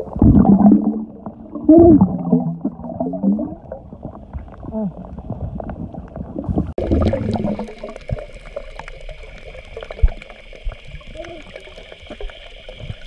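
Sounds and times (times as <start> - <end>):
underwater water sloshing and bubbling: 0.0 - 13.0.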